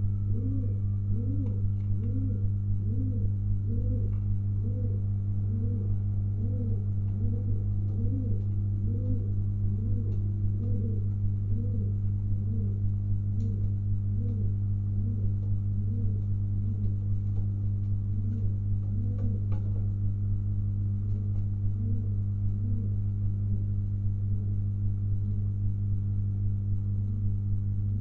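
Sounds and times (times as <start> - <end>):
low electrical hum: 0.0 - 28.0
pigeon cooing: 0.2 - 17.5, 18.1 - 19.8, 21.1 - 23.7.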